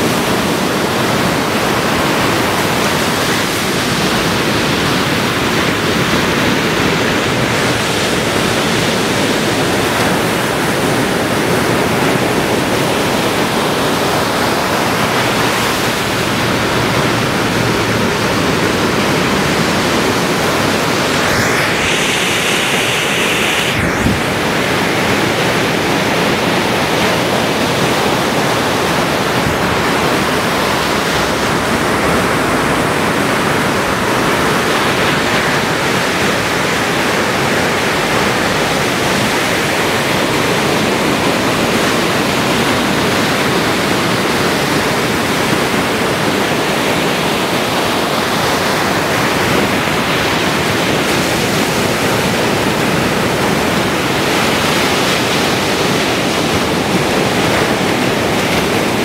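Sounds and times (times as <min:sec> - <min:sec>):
ocean surf breaking: 0:00.0 - 0:59.0.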